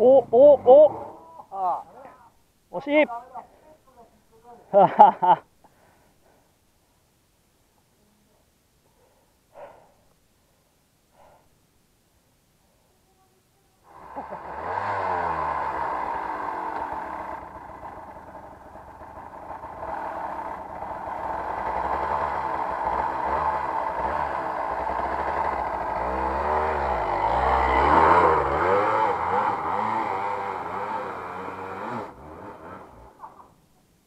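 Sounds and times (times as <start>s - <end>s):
motorcycle engine revving: 13.9s - 33.3s.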